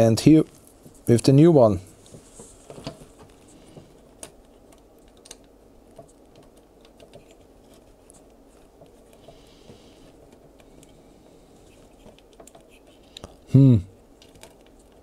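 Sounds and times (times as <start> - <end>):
fingers clicking on circuit board: 4.2 - 9.4.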